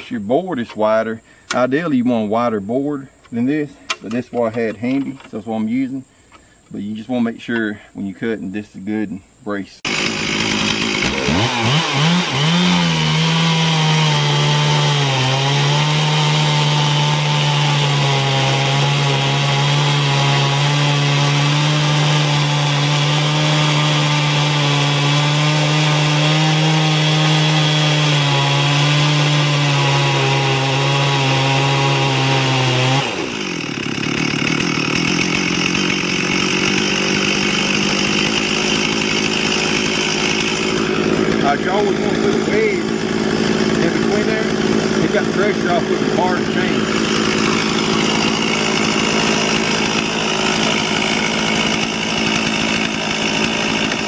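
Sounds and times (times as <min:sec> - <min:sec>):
chainsaw cutting through log: 0:09.8 - 0:54.0.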